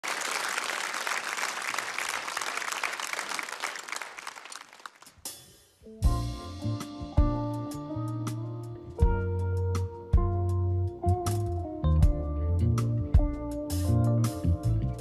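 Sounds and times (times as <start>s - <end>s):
audience applauding: 0.0s - 5.3s
band playing bass and chords: 5.9s - 15.0s.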